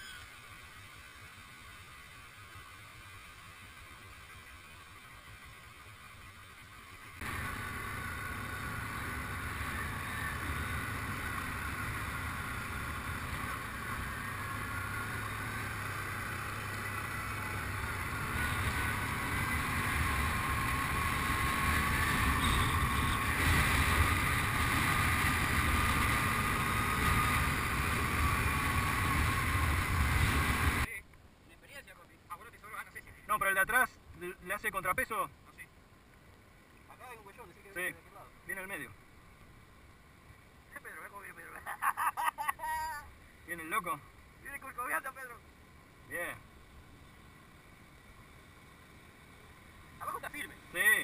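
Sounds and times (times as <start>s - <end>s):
quad bike engine running: 0.0s - 30.9s.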